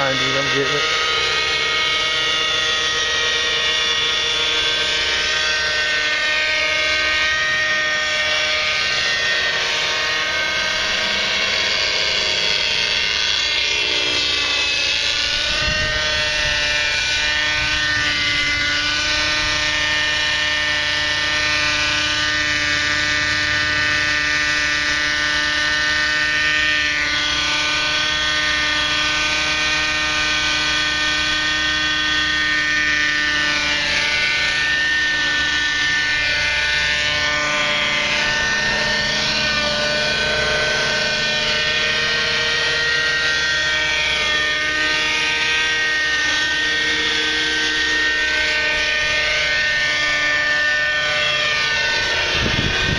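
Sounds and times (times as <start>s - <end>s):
model helicopter engine buzzing: 0.0s - 52.9s.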